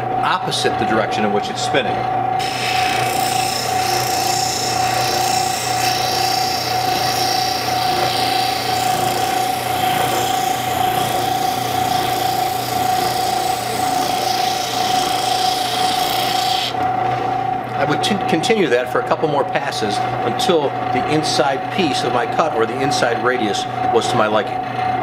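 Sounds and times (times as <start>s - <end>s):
spindle sander grinding wood: 2.4s - 16.8s.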